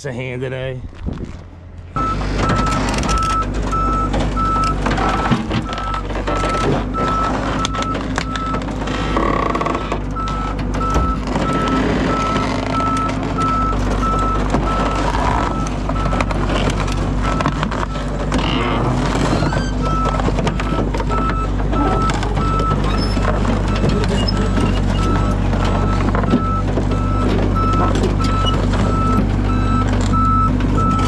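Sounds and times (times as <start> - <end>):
diesel engine running: 0.0 - 31.0
reversing alarm beeps: 10.2 - 16.3, 19.8 - 31.0.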